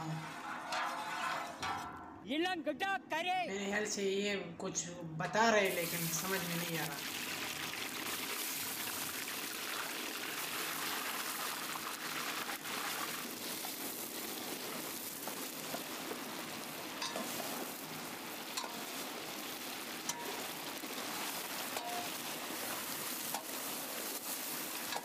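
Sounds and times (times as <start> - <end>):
meat sizzling in hot oil: 5.6 - 25.0.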